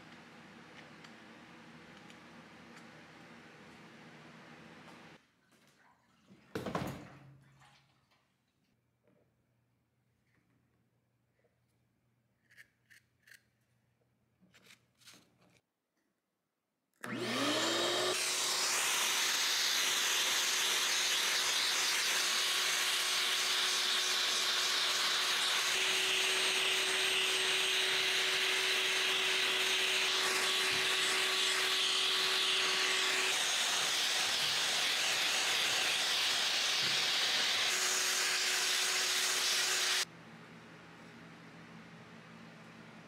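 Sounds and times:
shop vacuum motor whine: 17.0 - 40.1.

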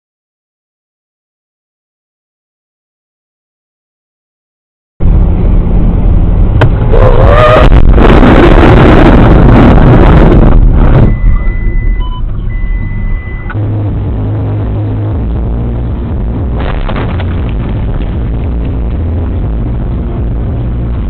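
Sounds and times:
vehicle engine and road rumble: 5.0 - 21.0
electronic beep tones: 11.0 - 13.6
loud collision noise: 16.5 - 18.4.

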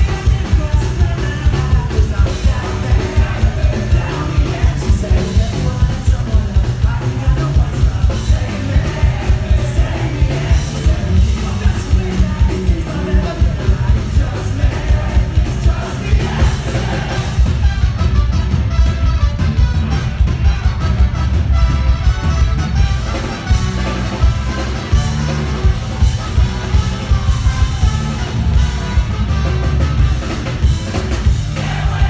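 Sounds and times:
person singing: 0.0 - 17.5
drums: 0.0 - 32.0
electric guitar: 0.0 - 32.0
saxophones: 16.3 - 31.1
trombone: 16.8 - 32.0.

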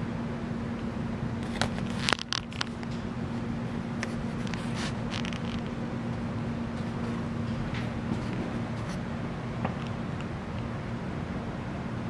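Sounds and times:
ceiling fan humming: 0.0 - 12.0.

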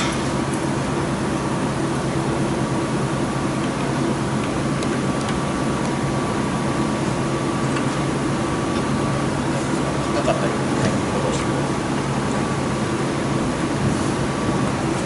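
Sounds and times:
workshop machinery hum: 0.0 - 15.0.

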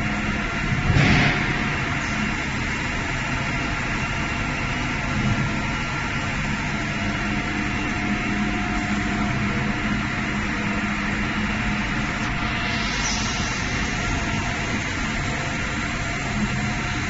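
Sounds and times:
extrusion machine humming: 0.0 - 17.0.

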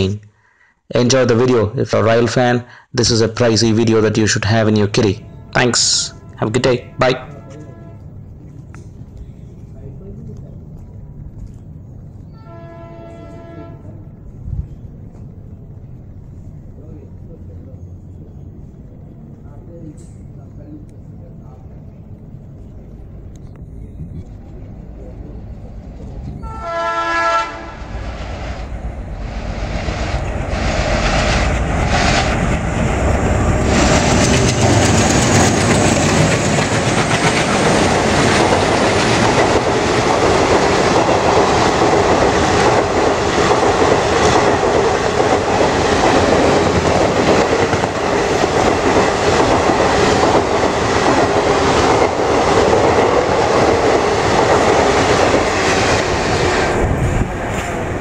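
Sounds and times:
diesel locomotive engines chugging: 3.0 - 58.0
train horn blast: 5.2 - 8.3, 12.3 - 14.3, 26.4 - 28.1
coach wheels clattering over rail joints: 28.8 - 58.0.

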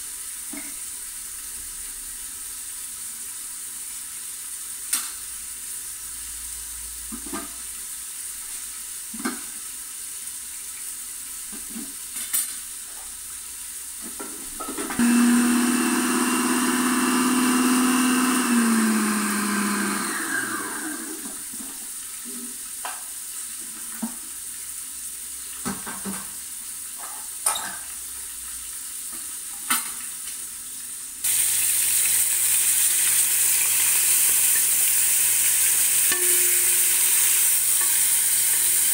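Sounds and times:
food sizzling in a pot: 0.0 - 38.9
food processor running: 14.9 - 21.4, 31.3 - 38.9.

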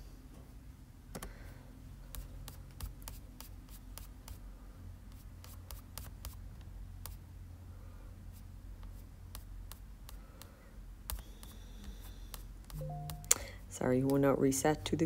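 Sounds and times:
low room hum: 0.0 - 15.0
taps on glass screen: 12.7 - 13.4.

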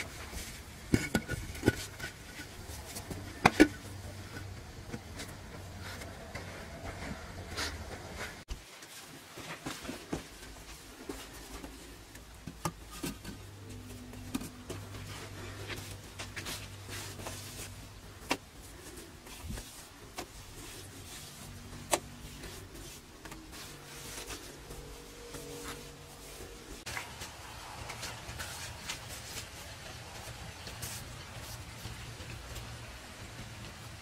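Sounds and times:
stones scraping and knocking: 0.0 - 8.4.

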